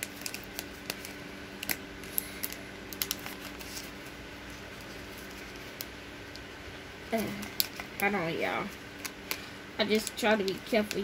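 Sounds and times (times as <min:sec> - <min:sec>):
plastic packaging clicking and crinkling: 0:00.0 - 0:04.0, 0:07.1 - 0:08.2
faint steady hum: 0:00.0 - 0:11.0.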